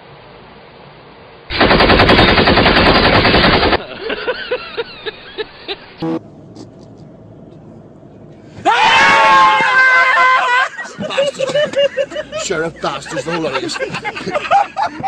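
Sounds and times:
rapid loud bangs: 0:01.5 - 0:03.8
short yelps or laughs: 0:08.6 - 0:11.6.

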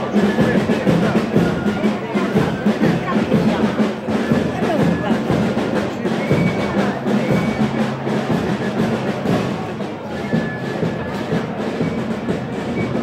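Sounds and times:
band music with drums: 0:00.0 - 0:13.0.

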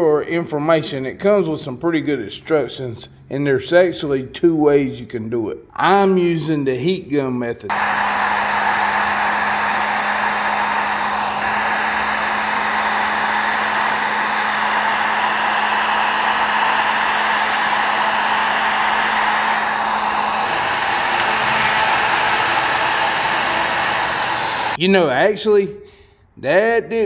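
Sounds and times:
heat gun blowing air: 0:07.7 - 0:24.8.

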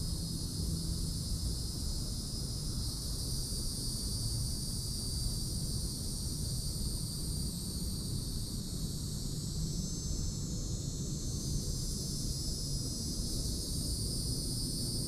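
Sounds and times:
insects chorus: 0:00.0 - 0:15.0.

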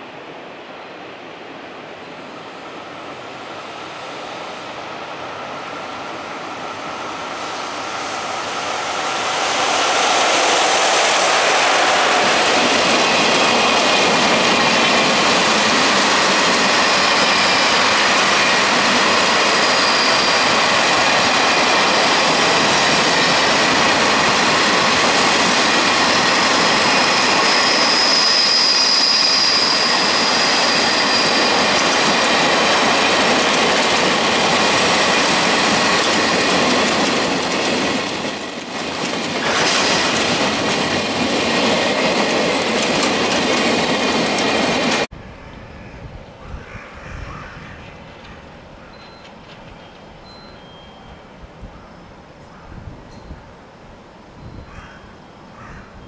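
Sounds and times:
electric locomotive approaching: 0:00.0 - 0:56.0
freight wagons rattling on rails: 0:11.9 - 0:45.1, 0:48.9 - 0:50.9
high-pitched wheel squeal: 0:16.6 - 0:21.2, 0:26.2 - 0:32.1.

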